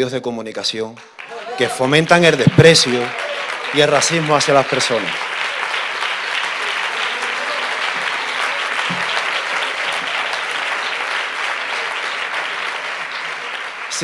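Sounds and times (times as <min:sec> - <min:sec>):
audience applauding: 0:01.0 - 0:14.0.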